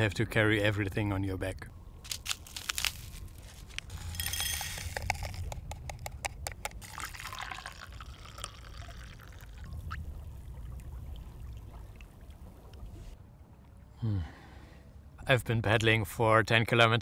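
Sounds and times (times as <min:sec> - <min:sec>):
sachet rustling: 0:02.0 - 0:06.1
milk pouring: 0:03.8 - 0:09.8
hot water pouring into mug: 0:06.8 - 0:09.8.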